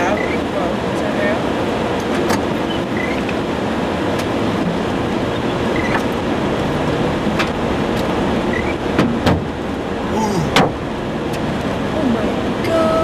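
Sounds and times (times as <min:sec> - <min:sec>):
sharp knocks: 0:09.0 - 0:09.5, 0:10.5 - 0:10.8.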